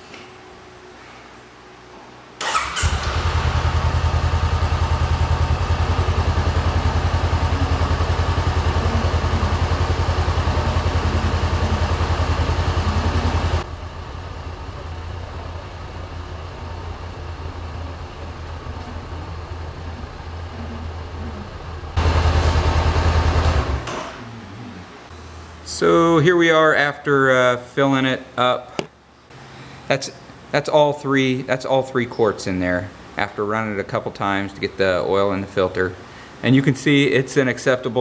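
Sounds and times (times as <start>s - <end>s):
motorcycle engine starting and idling: 2.4s - 24.3s.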